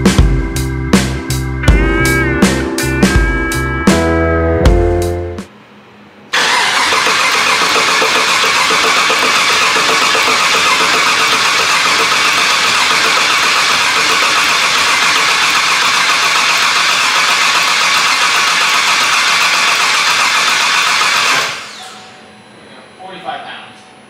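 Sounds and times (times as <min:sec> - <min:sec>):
engine cranking on starter: 0:06.3 - 0:22.1.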